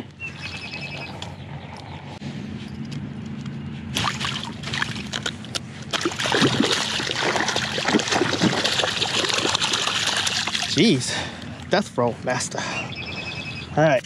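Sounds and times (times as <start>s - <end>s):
fish splashing in shallow water: 4.0s - 10.9s.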